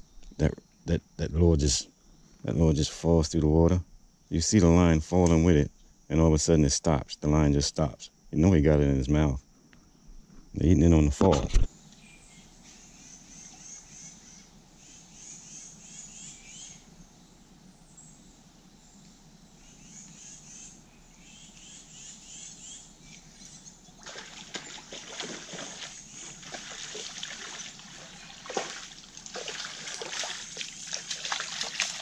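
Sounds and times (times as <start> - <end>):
bird chirping: 11.9 - 19.0, 19.6 - 28.9
fish splashing at water surface: 24.0 - 32.0.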